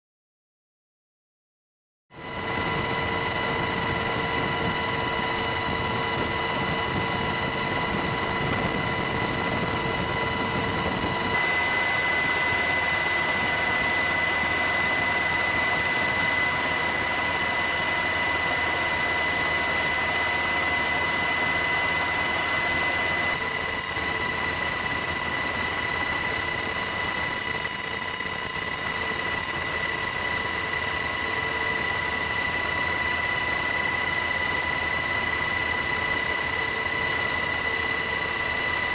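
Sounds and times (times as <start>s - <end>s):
helicopter rushing noise: 2.2s - 17.0s
turbine and gearbox whine: 2.2s - 38.9s.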